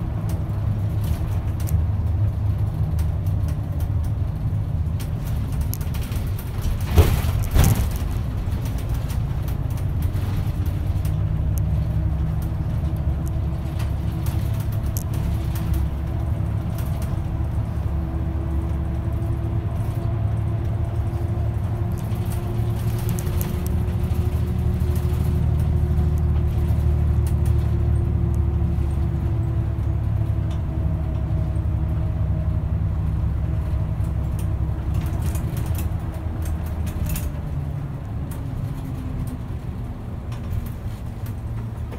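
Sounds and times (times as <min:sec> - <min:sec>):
bus engine and tyres rumbling: 0:00.0 - 0:41.9.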